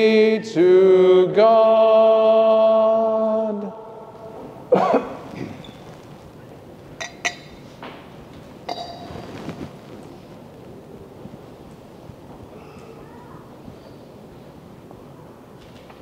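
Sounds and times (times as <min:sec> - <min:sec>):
person coughing: 0:04.7 - 0:05.6
glass candle holders clinking: 0:07.0 - 0:07.6, 0:08.7 - 0:09.3.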